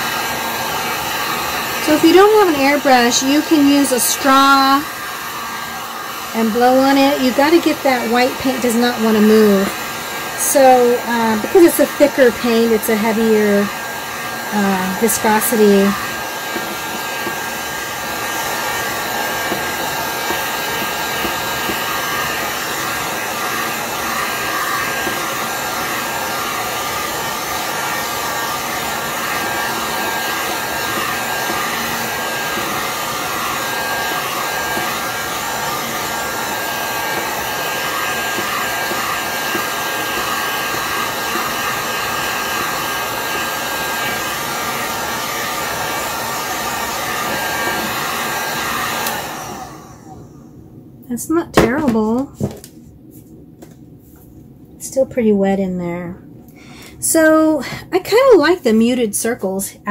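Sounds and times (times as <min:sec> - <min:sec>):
heat gun blowing air: 0:00.0 - 0:50.4
heat gun whine: 0:00.0 - 0:50.6.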